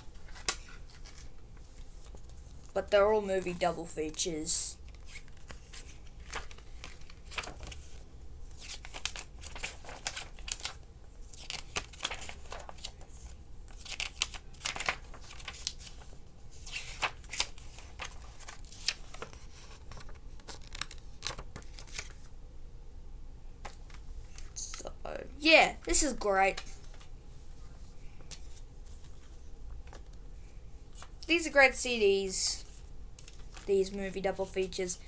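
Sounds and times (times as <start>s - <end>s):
paper booklet rustling: 0.0s - 22.3s, 25.7s - 34.7s.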